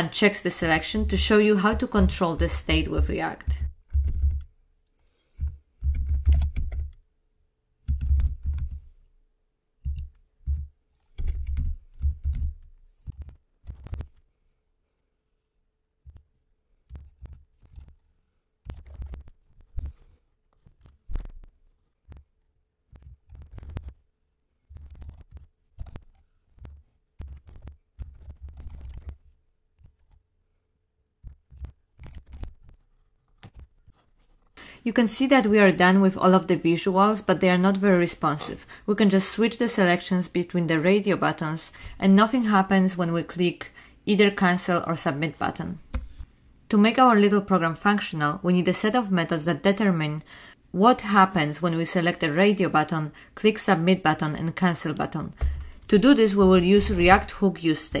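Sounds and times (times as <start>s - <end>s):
typing on a computer keyboard: 2.0s - 7.0s, 7.8s - 8.8s, 9.8s - 14.2s, 24.8s - 29.2s, 31.2s - 32.8s.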